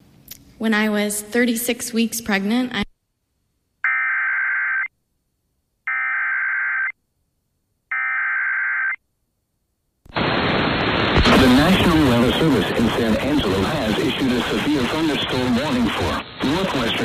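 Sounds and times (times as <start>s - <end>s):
static hiss: 10.1s - 17.0s.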